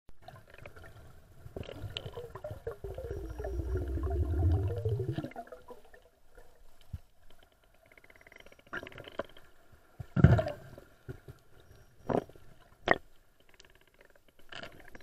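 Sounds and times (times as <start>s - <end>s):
underwater gurgling: 0.2s - 9.4s
pulsing wavering rumble: 2.8s - 5.2s.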